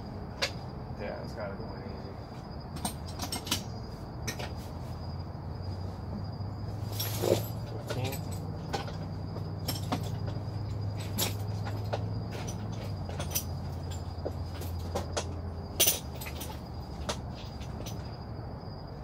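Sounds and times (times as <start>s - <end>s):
steady low hum: 0.0s - 19.0s
metal tools clinking and knocking: 2.7s - 4.6s, 6.9s - 18.2s.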